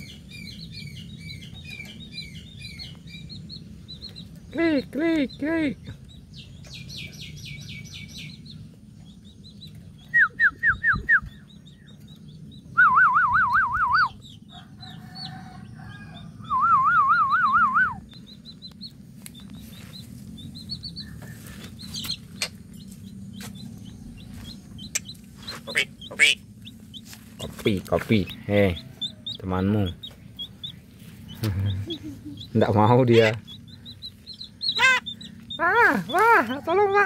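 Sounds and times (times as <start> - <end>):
myna bird chirping: 0.0 - 37.0
loud warbling whistles: 12.7 - 14.2, 16.4 - 18.0.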